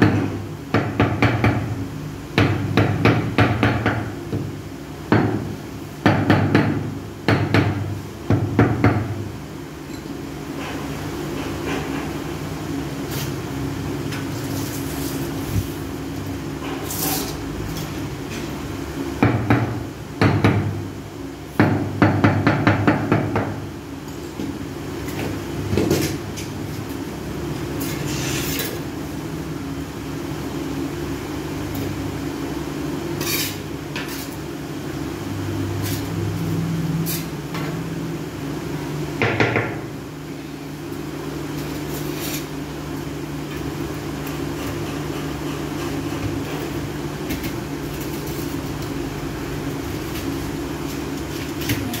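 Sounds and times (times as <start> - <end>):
tile scraping: 27.8 - 28.8.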